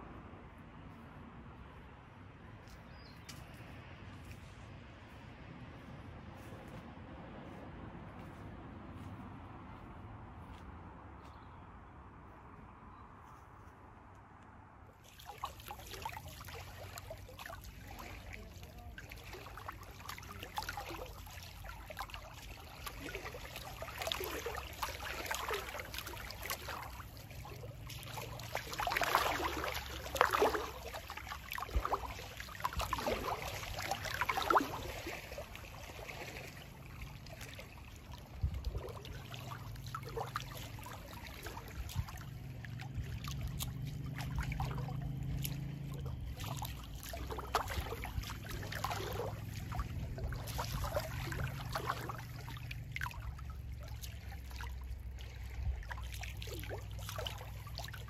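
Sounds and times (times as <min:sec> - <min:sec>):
small waves lapping: 0:15.0 - 0:58.0.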